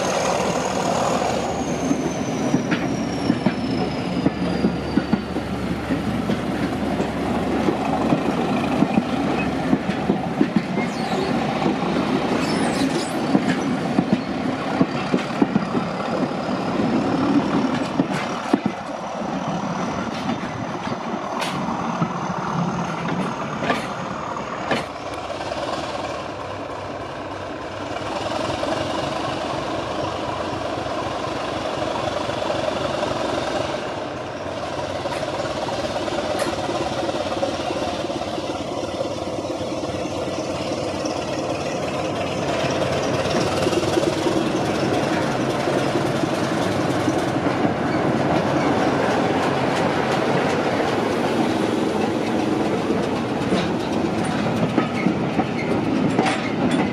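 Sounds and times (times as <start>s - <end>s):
diesel train running: 0.0s - 56.9s
wheels clicking over rail joints: 4.2s - 19.0s, 35.0s - 56.9s.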